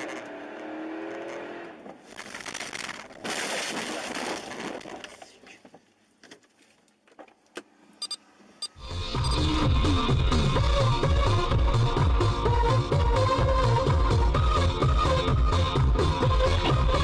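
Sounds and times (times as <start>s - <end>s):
crunching and breaking glass: 2.0s - 5.0s
electronic music with heavy beat: 8.8s - 17.0s.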